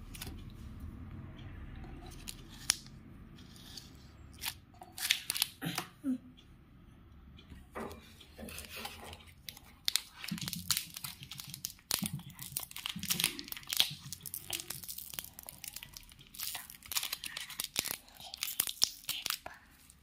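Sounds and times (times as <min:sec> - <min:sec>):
plastic wrapper tearing and crinkling: 0:02.1 - 0:02.9, 0:04.4 - 0:05.6, 0:08.6 - 0:19.9.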